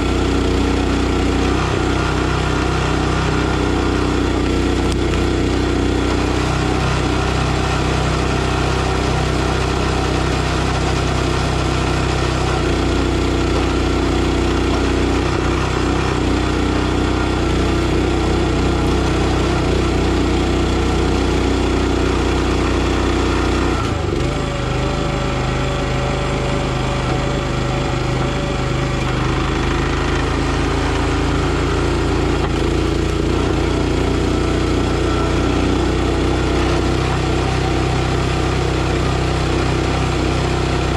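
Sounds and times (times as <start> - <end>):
small gasoline engine running: 0.0 - 40.9.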